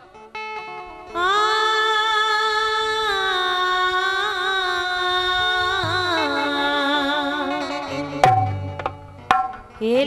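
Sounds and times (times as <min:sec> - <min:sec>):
harmonium: 0:00.0 - 0:10.0
woman singing folk song: 0:00.9 - 0:08.1.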